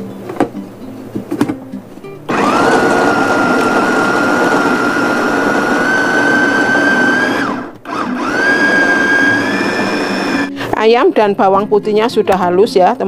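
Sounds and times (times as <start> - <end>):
food chopper motor whine: 2.3 - 10.6.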